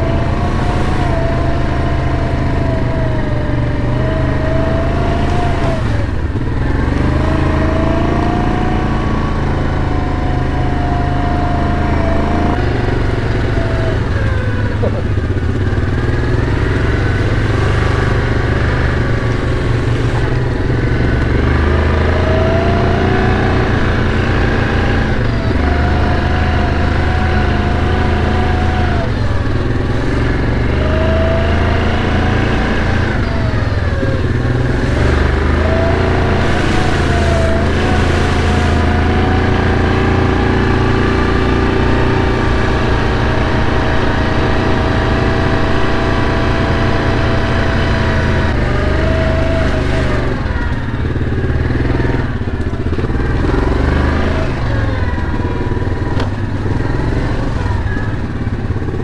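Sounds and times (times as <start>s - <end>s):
atv engine running: 0.0s - 59.0s.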